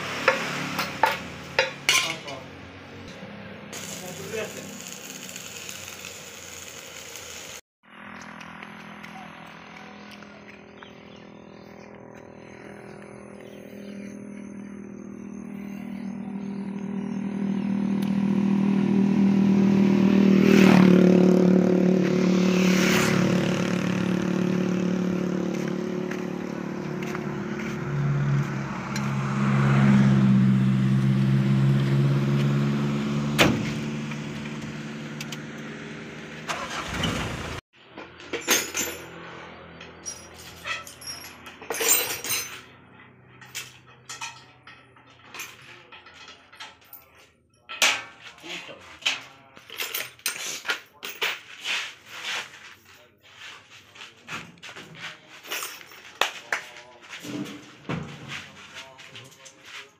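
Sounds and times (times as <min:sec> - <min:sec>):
vehicle engine droning: 0:00.0 - 0:46.7.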